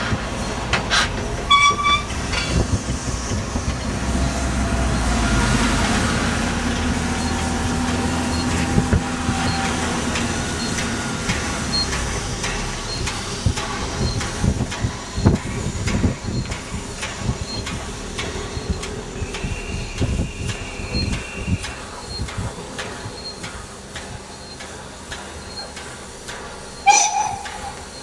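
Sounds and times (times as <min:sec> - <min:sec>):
rail joint clicks: 0:00.0 - 0:28.0
train wheels rumbling on rails: 0:00.0 - 0:28.0
brief high tone: 0:26.9 - 0:27.8.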